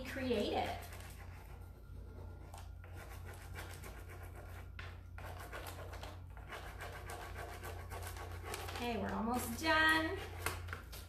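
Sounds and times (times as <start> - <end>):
steady low hum: 0.0 - 11.0
scratchy rubbing on wood: 0.6 - 9.5.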